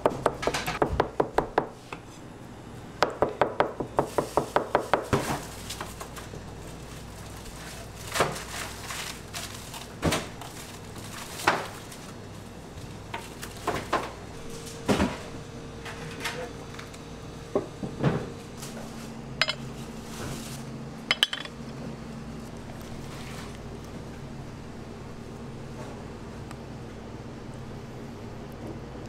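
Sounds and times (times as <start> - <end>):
ceramic dishes clinking: 19.4 - 19.6, 21.1 - 21.6.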